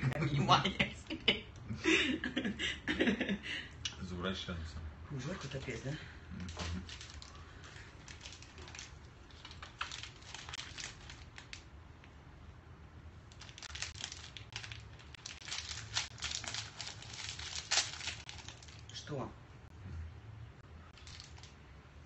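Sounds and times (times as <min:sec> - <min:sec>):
ice cream wrapper crackling: 0:06.4 - 0:11.7, 0:13.2 - 0:19.0, 0:20.9 - 0:21.6.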